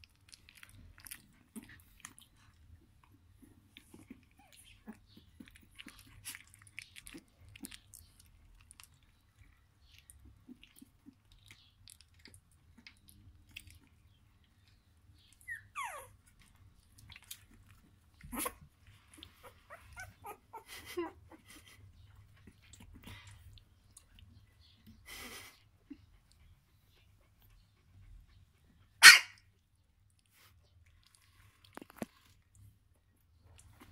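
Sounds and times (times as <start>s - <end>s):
puppy whining: 0.3s - 7.8s, 14.6s - 23.6s
wet smacking and clicking: 16.4s - 18.3s.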